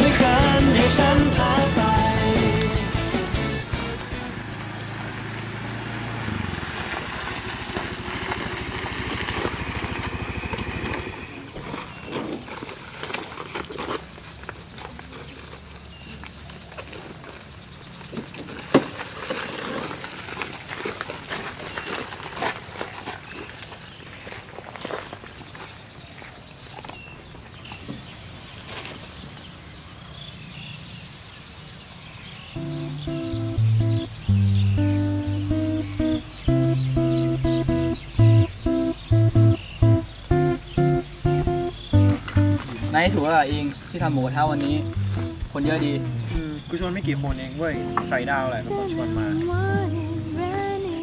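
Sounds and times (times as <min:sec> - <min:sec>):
scooter engine running: 0:00.0 - 0:13.5, 0:32.6 - 0:50.8
plastic bags rustling: 0:11.6 - 0:15.8, 0:18.3 - 0:23.6
bird chirps: 0:25.3 - 0:50.8
soft footsteps: 0:35.5 - 0:46.3.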